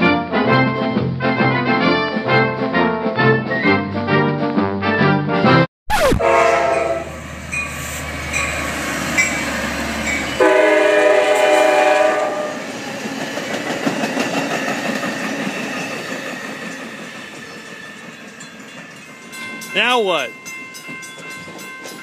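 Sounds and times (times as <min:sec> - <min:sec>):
train horn: 0:06.2 - 0:07.2, 0:10.4 - 0:12.7
locomotive engine rumbling: 0:06.2 - 0:22.0
train cars rolling by: 0:06.6 - 0:22.0.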